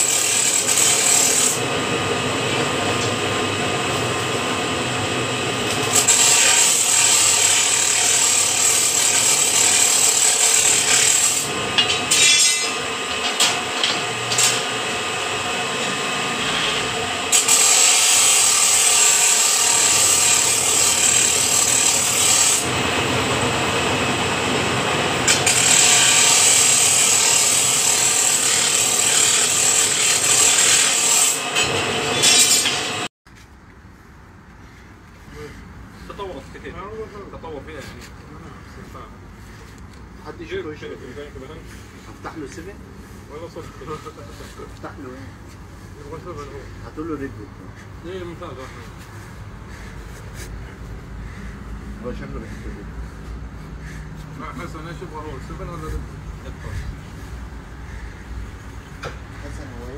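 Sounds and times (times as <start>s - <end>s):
bending machine running: 0.0s - 33.1s.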